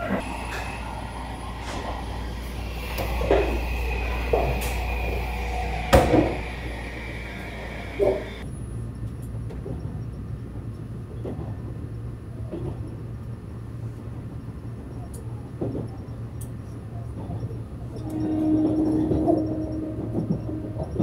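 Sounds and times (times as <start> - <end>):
train carriage rumbling: 0.0 - 21.0.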